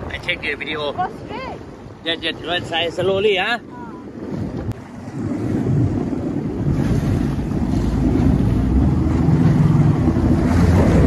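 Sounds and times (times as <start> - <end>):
jet ski engine hum: 0.0 - 11.0
rushing water: 0.0 - 11.0
wind noise on microphone: 0.0 - 11.0.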